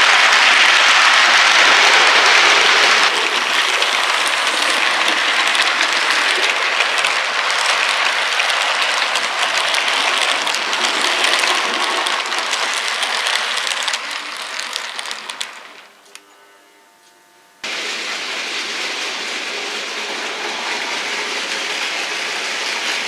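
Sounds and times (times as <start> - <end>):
model train wheels rattling on track: 0.0 - 15.9, 17.7 - 23.0.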